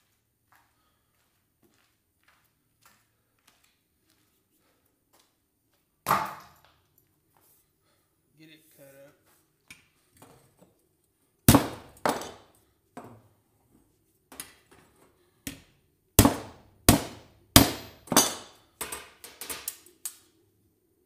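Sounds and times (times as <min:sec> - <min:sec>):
hammer striking metal: 0:16.2 - 0:18.6.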